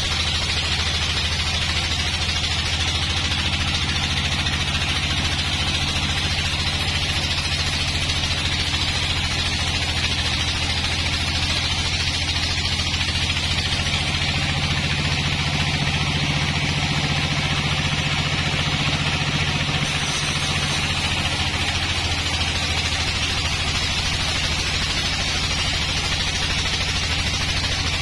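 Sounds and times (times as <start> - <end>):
low machine hum: 0.0 - 28.0
saw blade cutting wood hiss: 19.7 - 25.4.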